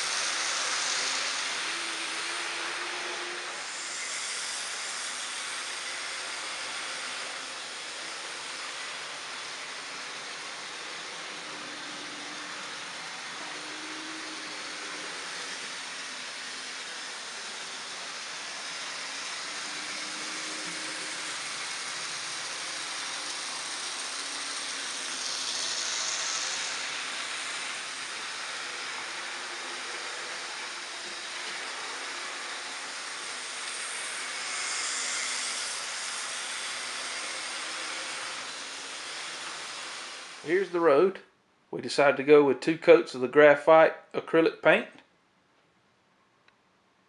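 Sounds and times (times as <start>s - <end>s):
model train running on track: 0.0s - 41.0s
steady hiss: 0.0s - 41.1s.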